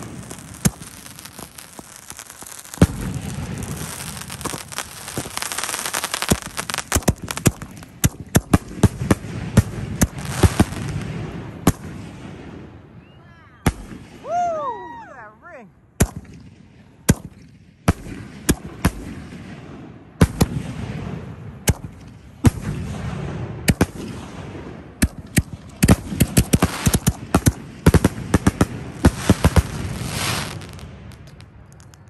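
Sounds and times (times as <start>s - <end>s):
firework shells bursting: 0.0s - 12.0s, 25.0s - 32.0s.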